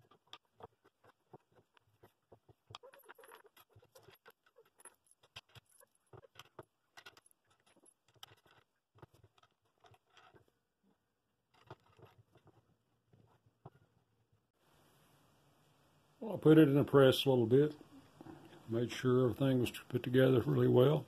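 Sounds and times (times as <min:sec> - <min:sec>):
metal washers and nuts clinking: 0:02.0 - 0:10.5.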